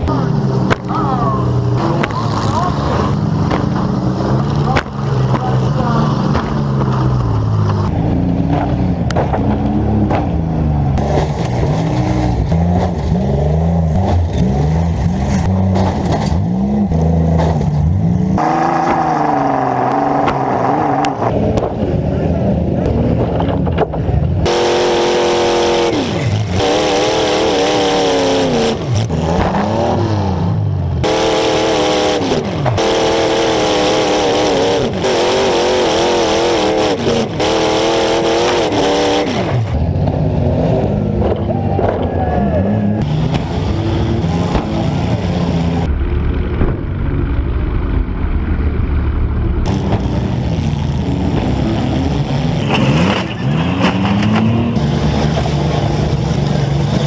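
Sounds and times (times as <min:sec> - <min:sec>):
car engines revving hard: 0:00.0 - 0:57.0
low rough engine rumble: 0:20.0 - 0:24.5, 0:39.6 - 0:52.6.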